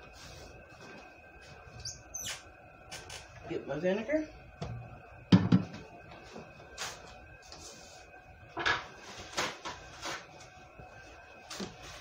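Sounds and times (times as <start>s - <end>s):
knocks on kitchen counter: 5.3s - 5.8s.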